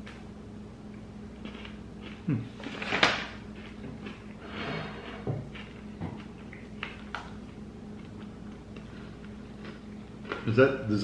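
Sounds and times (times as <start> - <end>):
cookie crunching and chewing: 0.9 - 4.4, 5.5 - 10.7.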